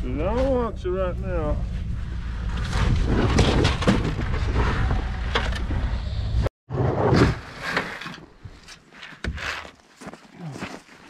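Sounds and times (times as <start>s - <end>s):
vehicle engine running: 0.2s - 3.1s
knocks and rustling: 2.4s - 5.9s.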